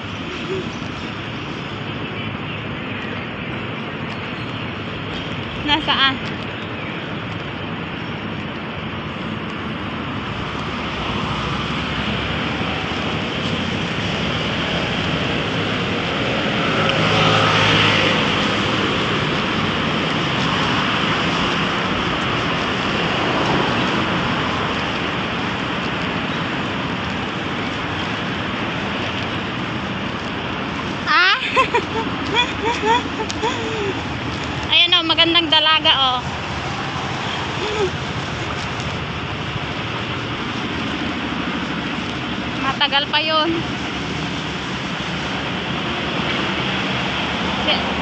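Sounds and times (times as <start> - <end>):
passing cars: 0.0 - 48.0
vehicle passing close: 10.2 - 42.1.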